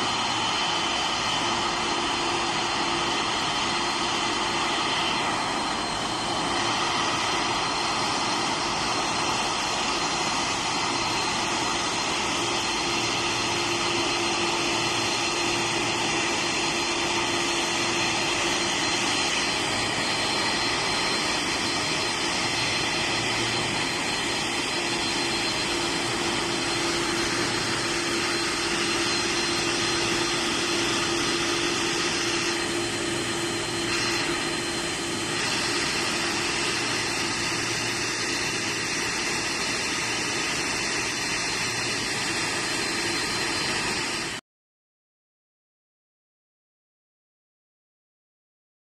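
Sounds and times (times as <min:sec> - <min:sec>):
jet engines taxiing: 0:00.0 - 0:44.4.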